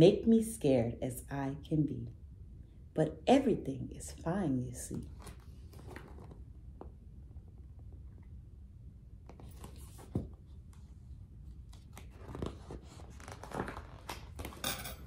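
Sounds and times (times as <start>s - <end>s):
low steady hum: 0.0s - 15.0s
paper page rustling: 9.3s - 10.3s, 11.5s - 14.6s.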